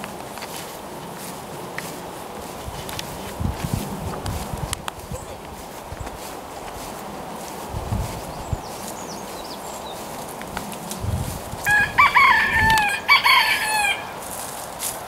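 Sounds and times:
chicken calling: 11.5s - 14.4s.

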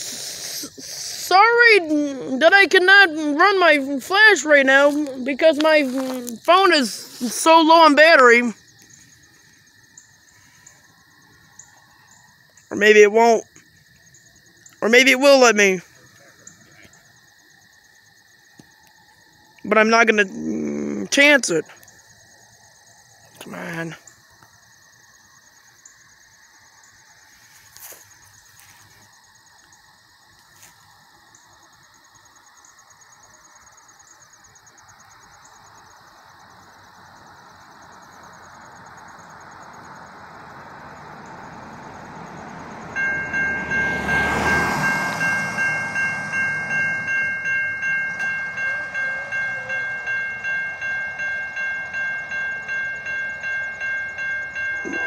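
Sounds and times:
train rumbling: 38.1s - 55.0s
railroad crossing bell ringing: 41.0s - 55.0s.

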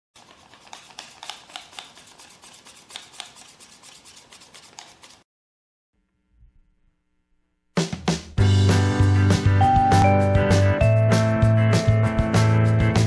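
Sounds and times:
paper rustling and clicking: 0.2s - 5.2s.

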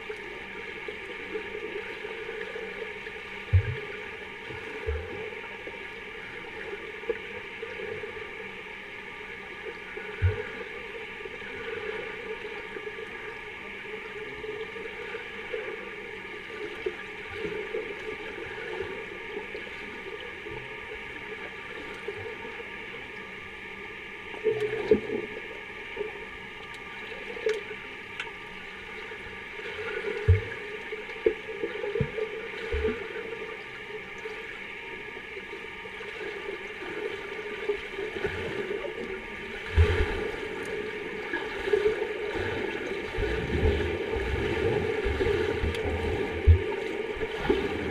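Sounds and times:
underwater bubbling: 0.0s - 47.9s
underwater hum and hiss: 0.0s - 47.9s
muffled low underwater thumps: 3.4s - 4.0s, 10.1s - 10.6s, 30.2s - 30.6s, 39.6s - 40.8s, 42.3s - 47.9s.

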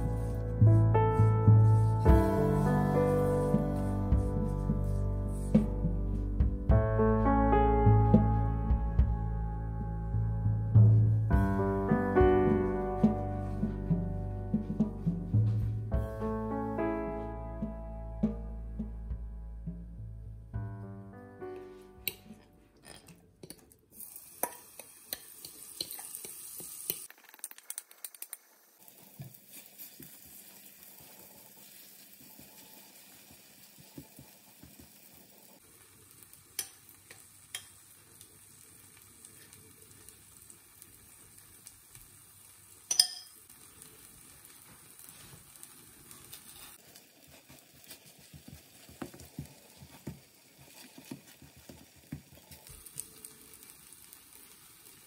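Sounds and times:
batter sizzling in frying pan: 23.9s - 55.0s
spoon scraping bowl and pan: 24.4s - 27.1s, 42.9s - 43.4s
sharp clink: 42.9s - 43.4s.

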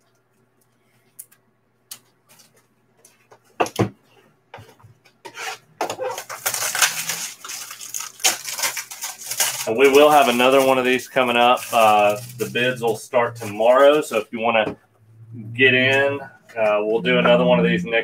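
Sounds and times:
plastic wrap crinkling and tearing: 5.9s - 14.2s.

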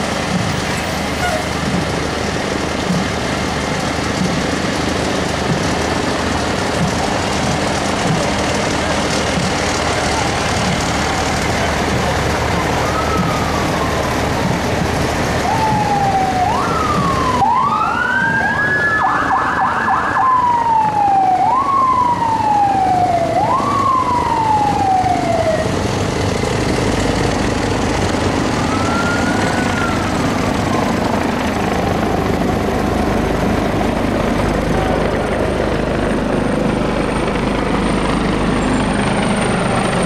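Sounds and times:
fire truck siren sweeps: 0.0s - 40.0s
vehicle noise: 0.0s - 40.0s
slow siren wail: 9.3s - 40.0s
warbling siren yelp: 11.1s - 14.6s, 15.3s - 25.8s, 28.1s - 32.8s.

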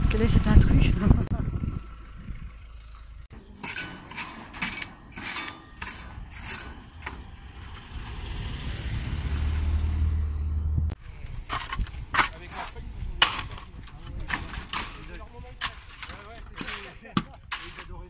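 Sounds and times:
low rumble: 0.0s - 4.1s, 4.8s - 16.0s
hand tool scraping: 3.4s - 8.1s, 11.1s - 18.0s.

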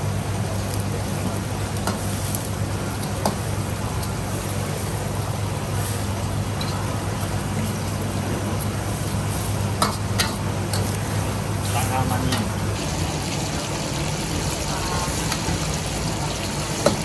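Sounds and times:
kitchen machinery roaring: 3.7s - 17.0s.

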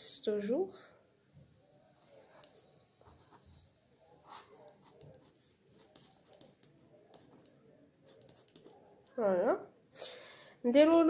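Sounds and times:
pen scratching on paper: 2.0s - 8.8s.

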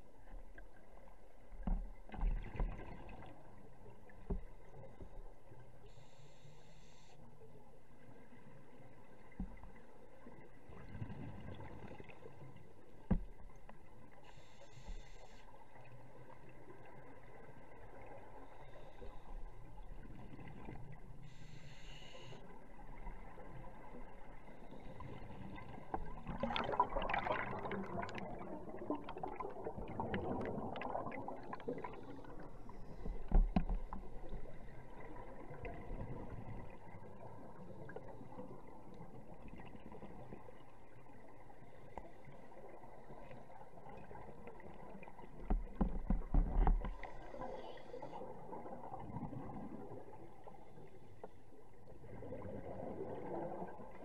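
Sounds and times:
steady underwater hiss: 3.3s - 9.3s, 13.9s - 26.3s, 46.6s - 54.0s
exhaled bubbles gurgling: 22.6s - 51.0s, 51.6s - 54.0s.

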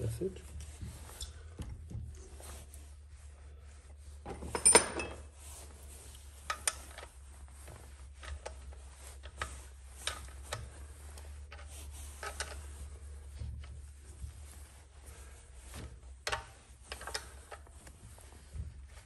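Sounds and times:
metal pipe fittings clinking: 4.3s - 5.3s.

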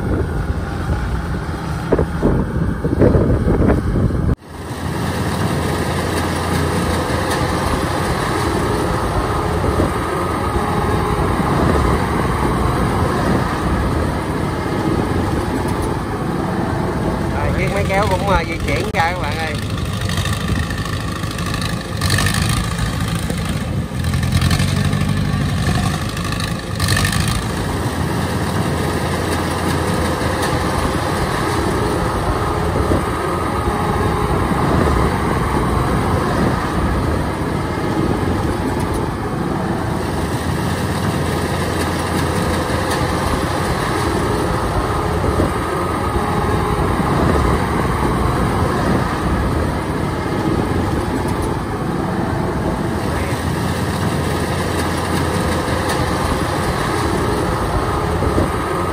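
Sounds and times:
diesel combine harvester running: 0.0s - 58.9s
transporter engine with knocks: 17.5s - 37.1s.

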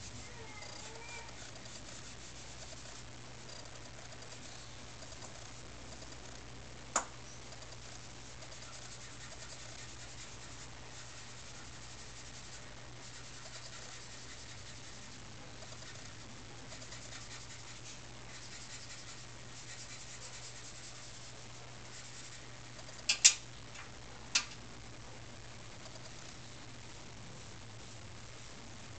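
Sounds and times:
pencil scratching on paper: 0.0s - 6.4s, 7.6s - 23.0s
steady low hum: 0.0s - 28.9s.

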